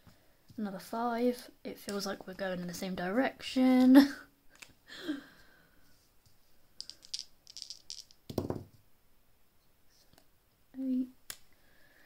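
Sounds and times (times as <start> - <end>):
dice rattling in hand: 6.8 - 8.7.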